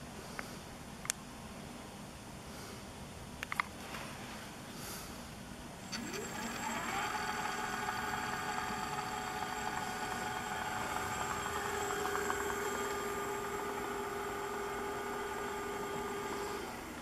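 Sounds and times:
hub motor whine: 5.8 - 17.0
lower motor tone: 5.9 - 17.0.

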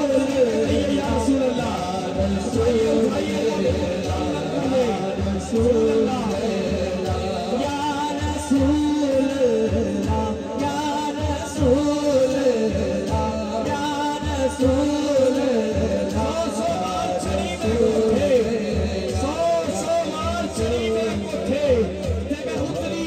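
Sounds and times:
men singing devotional song: 0.0 - 23.0
steady drum beat: 0.0 - 23.0.

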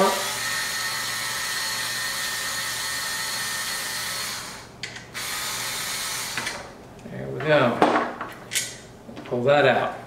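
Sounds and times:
power screwdriver whining: 0.0 - 6.6.

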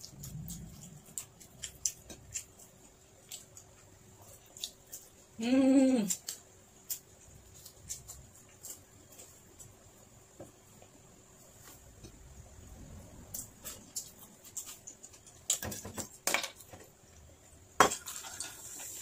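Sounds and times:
person humming mmm: 5.4 - 6.2.

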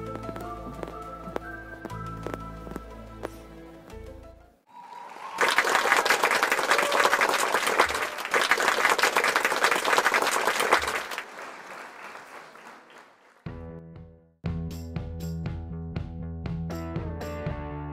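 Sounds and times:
hands clapping: 4.9 - 13.5.

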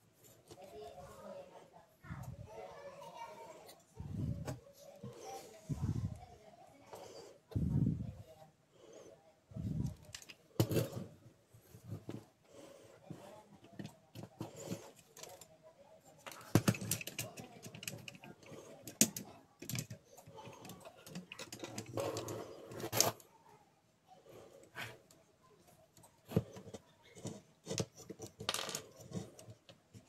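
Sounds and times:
plastic gears clicking and knocking: 16.2 - 23.2.

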